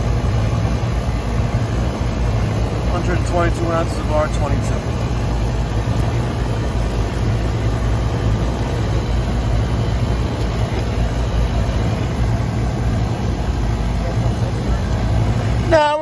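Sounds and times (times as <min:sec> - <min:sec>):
air conditioner fan humming: 0:00.0 - 0:16.0.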